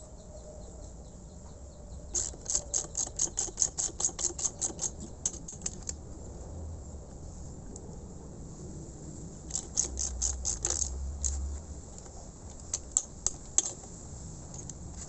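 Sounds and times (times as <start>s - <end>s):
metallic clicks of hand tools: 2.1s - 6.0s, 9.5s - 13.9s.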